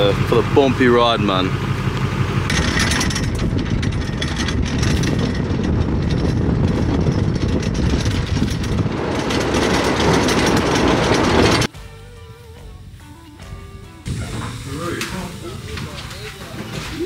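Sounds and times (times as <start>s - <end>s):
vehicle rumbling over bumpy track: 0.0s - 11.7s
knocks and rattles: 2.4s - 11.7s.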